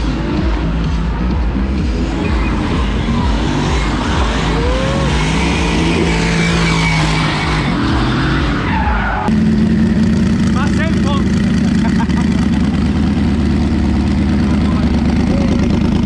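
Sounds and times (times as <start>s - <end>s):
drift car engine revving: 0.0s - 16.0s
tyres squealing on wet asphalt: 2.1s - 9.3s.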